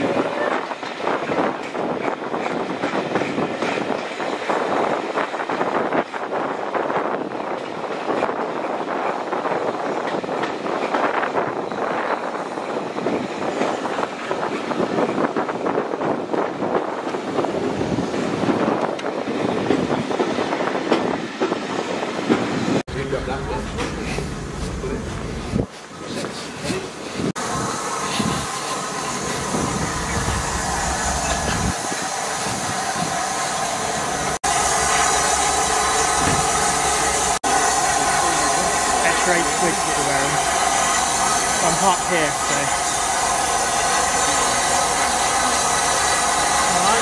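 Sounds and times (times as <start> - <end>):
wind buffeting microphone: 0.0 - 34.4
train wheels clattering on track: 0.0 - 47.0
steam locomotive hissing steam: 21.8 - 47.0.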